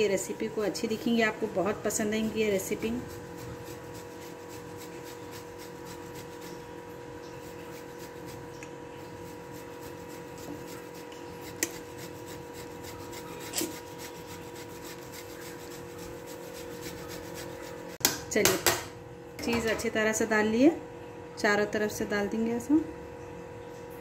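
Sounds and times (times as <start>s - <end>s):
cheese rasping on metal grater: 1.6s - 18.0s.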